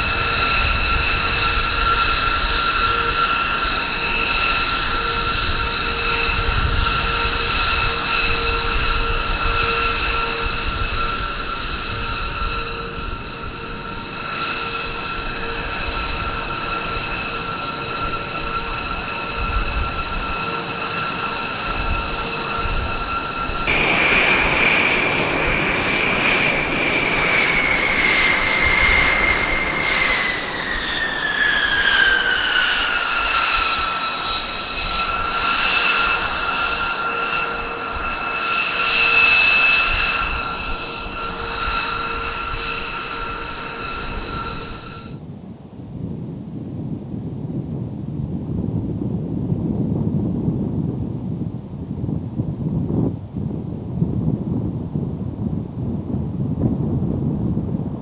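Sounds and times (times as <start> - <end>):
rushing jet noise: 0.0 - 45.3
jet engines whining: 0.0 - 45.8.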